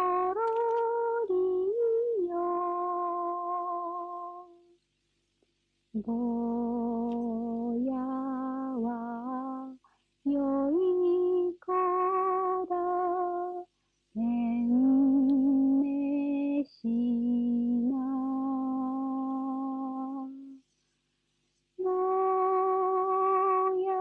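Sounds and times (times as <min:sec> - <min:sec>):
woman singing unaccompanied: 0:00.0 - 0:04.8, 0:05.9 - 0:20.7, 0:21.8 - 0:24.0.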